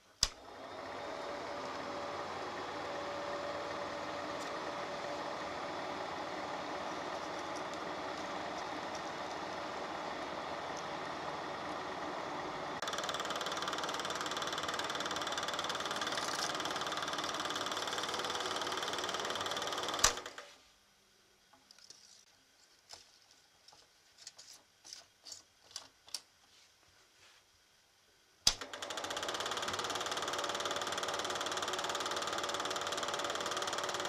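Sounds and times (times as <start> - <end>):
film projector whirring: 0.0 - 20.6, 28.5 - 34.0
sharp projector clicks: 7.0 - 9.6, 12.8 - 20.5, 28.5 - 34.0.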